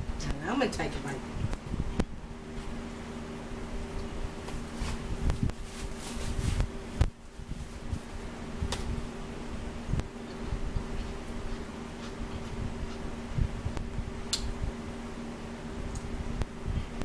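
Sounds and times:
steady mechanical hum: 0:00.0 - 0:17.0
chewing and mouth sounds: 0:10.2 - 0:13.1.

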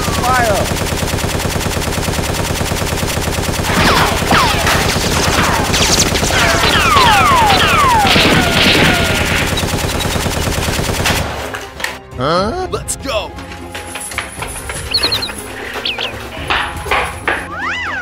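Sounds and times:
machine-gun fire: 0:00.0 - 0:11.6
bullet ricochet whines: 0:03.6 - 0:10.3.

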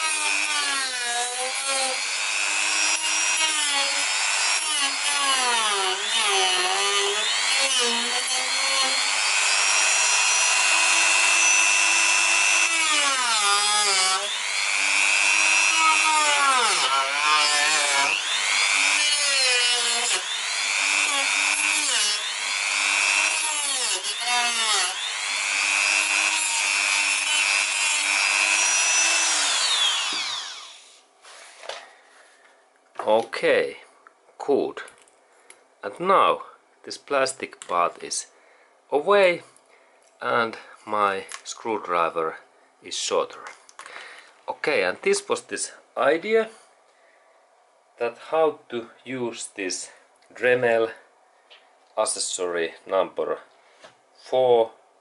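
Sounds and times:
rotary tool motor whine: 0:24.9 - 0:31.0.

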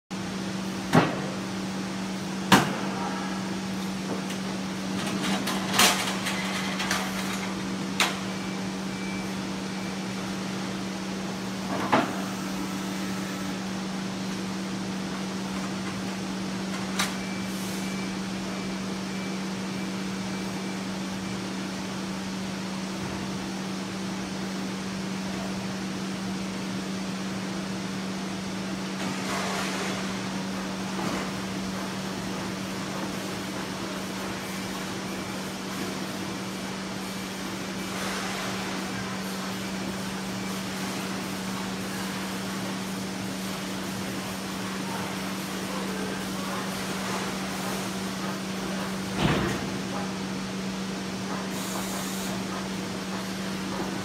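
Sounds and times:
machinery humming: 0:00.2 - 0:54.0.

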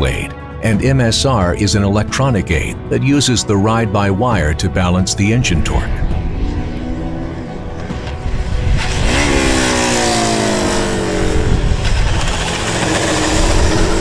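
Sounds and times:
motorcycle engine downshifting: 0:05.9 - 0:14.0
tyre and wind noise: 0:06.2 - 0:14.0.

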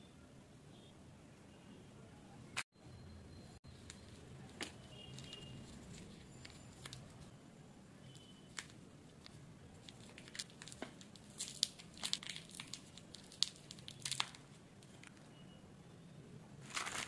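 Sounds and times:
candy wrapper crinkling: 0:03.9 - 0:07.3, 0:08.5 - 0:15.3, 0:16.6 - 0:17.0.

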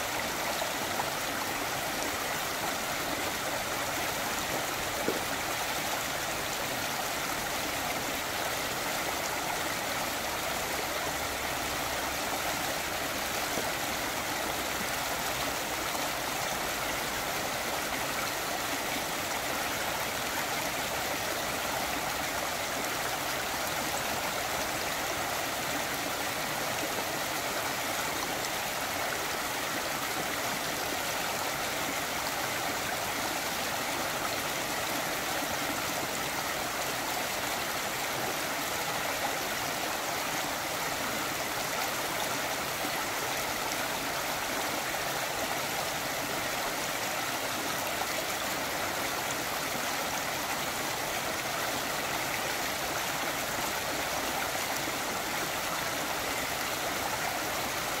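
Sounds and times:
stream flowing over stones: 0:00.0 - 0:58.0.

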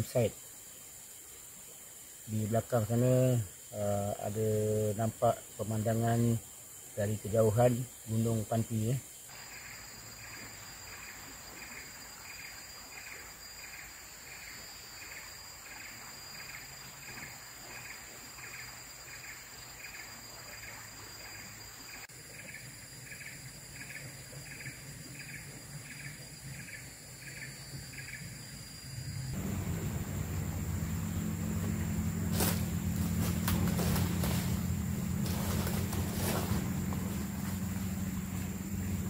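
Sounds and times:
insects calling: 0:00.0 - 0:39.0
faint low hum: 0:29.2 - 0:39.0.

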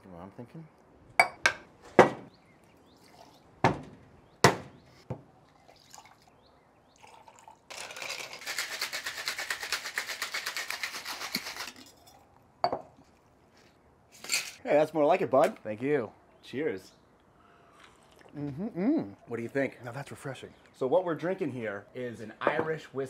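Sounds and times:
ice clinking in metal shaker: 0:07.0 - 0:12.2
ice rattling in shaker: 0:07.0 - 0:12.2
shaker tins knocking apart: 0:07.7 - 0:12.0.

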